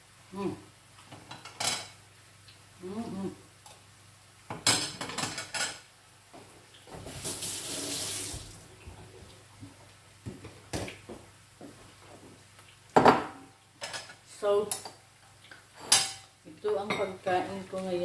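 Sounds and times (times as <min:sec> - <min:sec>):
kitchen tap running: 0:06.8 - 0:09.0.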